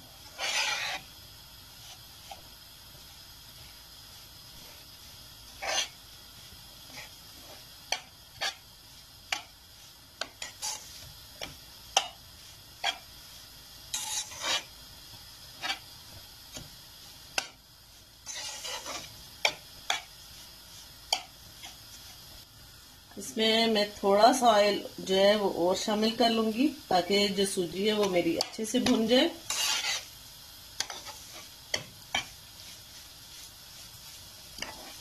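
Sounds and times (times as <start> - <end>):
metal spoon scraping pan: 0.2 - 1.1, 5.5 - 6.0, 10.2 - 12.2, 12.8 - 13.1, 13.9 - 14.7, 18.2 - 20.1, 28.0 - 30.1, 30.8 - 32.8, 34.6 - 35.0.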